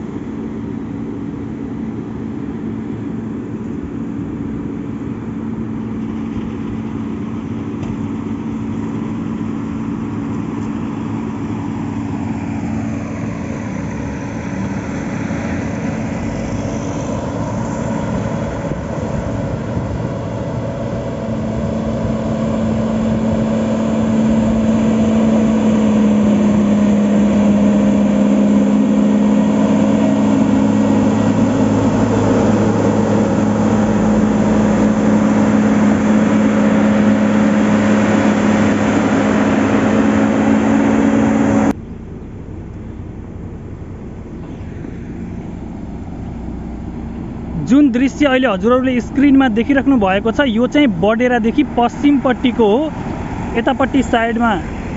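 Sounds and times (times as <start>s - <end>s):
diesel engine running: 0.0s - 54.9s.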